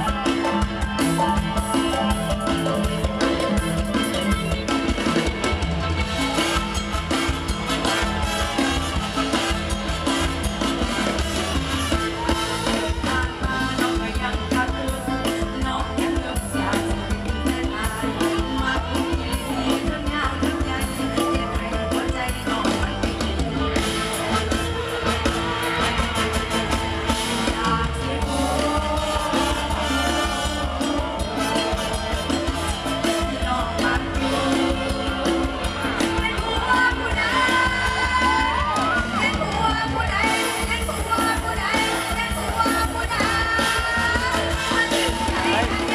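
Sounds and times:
drum kit beat: 0.0s - 45.9s
woman singing into microphone: 12.7s - 23.5s, 27.2s - 31.5s, 33.2s - 45.9s.

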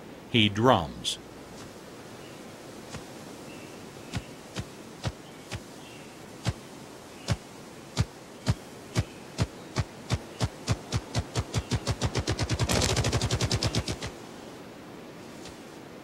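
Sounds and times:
grouse drumming with wings: 2.8s - 3.2s, 4.0s - 5.8s, 6.4s - 14.2s.

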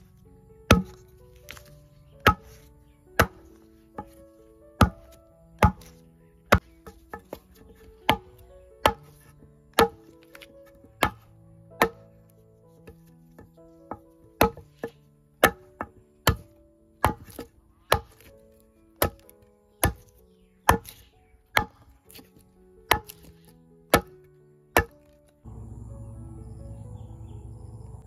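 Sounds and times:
steady outdoor hiss: 0.0s - 21.5s, 23.5s - 28.0s
soft background music: 0.0s - 28.0s
sharp chopping strikes: 0.7s - 4.1s, 4.8s - 7.4s, 8.1s - 9.2s, 9.8s - 10.4s, 11.0s - 12.0s, 14.4s - 18.3s, 19.0s - 20.1s, 20.7s - 22.2s, 22.9s - 23.3s, 23.9s - 24.2s, 24.8s - 25.2s.

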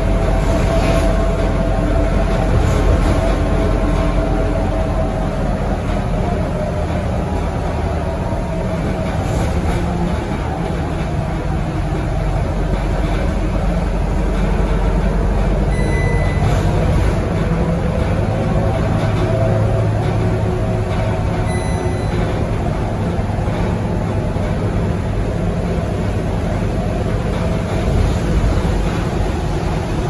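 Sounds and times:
diesel engine drone: 0.0s - 30.0s
high beep: 15.7s - 16.7s, 21.5s - 22.3s.

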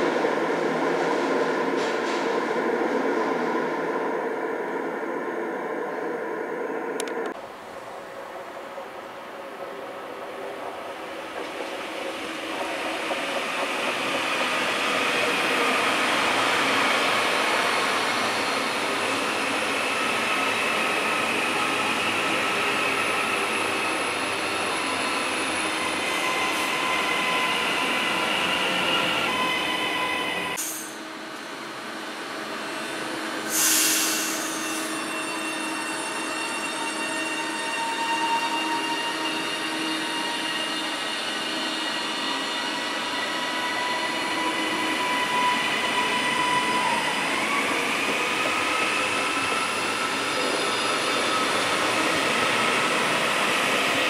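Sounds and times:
train wheels rumbling on rails: 0.0s - 3.5s, 9.5s - 29.4s
high train whine: 0.0s - 54.0s
short loud hiss: 33.5s - 34.8s.

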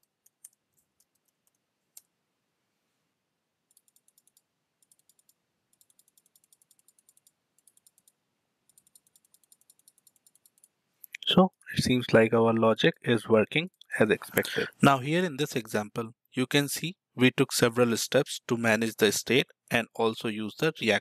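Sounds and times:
keystrokes: 0.0s - 2.1s, 3.7s - 11.7s
rapid mouse clicks: 0.0s - 2.1s, 3.7s - 11.7s.

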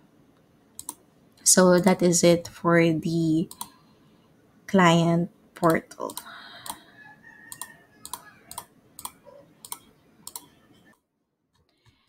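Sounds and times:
computer mouse clicking: 0.8s - 1.0s, 3.5s - 3.8s, 5.6s - 6.8s, 7.5s - 11.0s, 11.6s - 12.0s.

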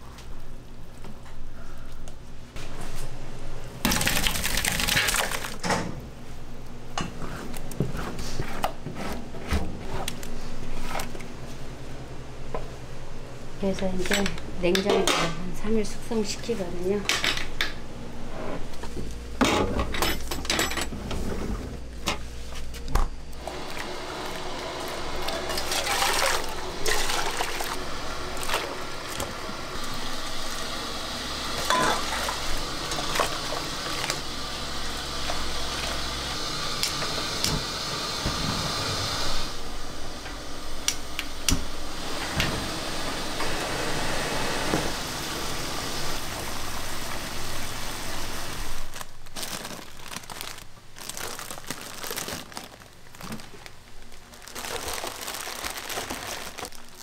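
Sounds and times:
pots and dishes clinking: 31.7s - 32.1s.

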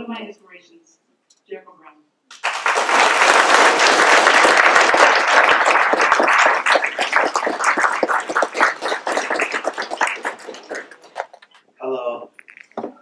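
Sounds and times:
audience applauding: 2.3s - 11.5s.

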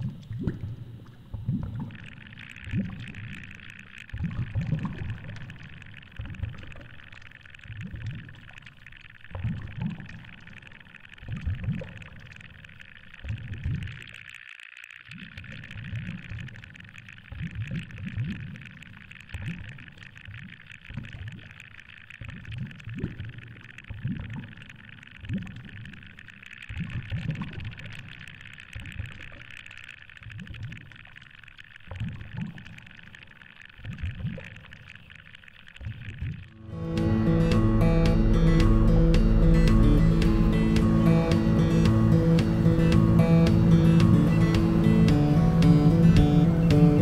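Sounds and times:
underwater water surging: 0.0s - 47.0s.

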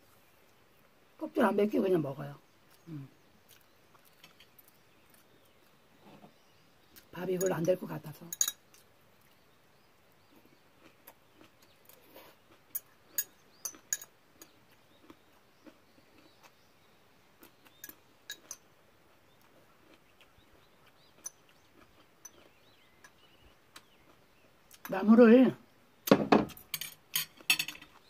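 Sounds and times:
quiet chewing: 2.6s - 7.6s, 8.6s - 24.9s, 27.2s - 28.0s.

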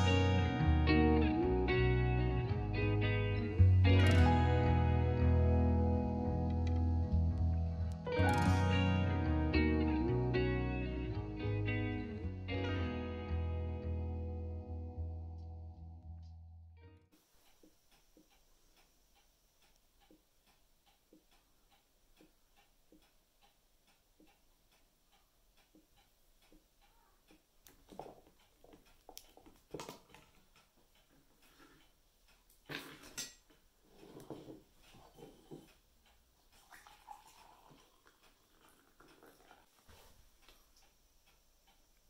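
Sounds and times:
faint steady ticking: 17.1s - 42.0s
coffee pouring into metal tumbler: 36.9s - 39.6s.

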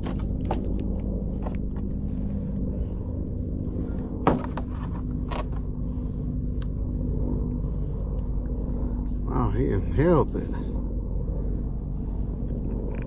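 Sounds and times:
sharp handling clicks and knocks: 0.0s - 2.0s, 4.2s - 5.7s
steady low rumble: 0.0s - 13.0s.

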